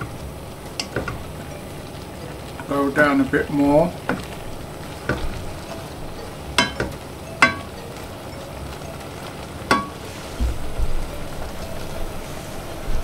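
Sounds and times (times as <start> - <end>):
cooking liquid sizzling: 0.0 - 13.0
wooden spoon stirring vegetables: 0.0 - 13.0
spoon knocking against pot: 6.6 - 7.7
low thud: 10.4 - 11.1.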